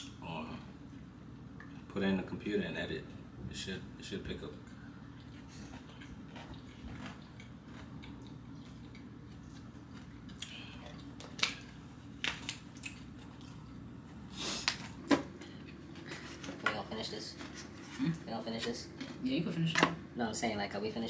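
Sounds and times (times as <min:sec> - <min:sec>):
low room hum: 0:00.0 - 0:21.0
eating crunches and clicks: 0:05.2 - 0:13.8.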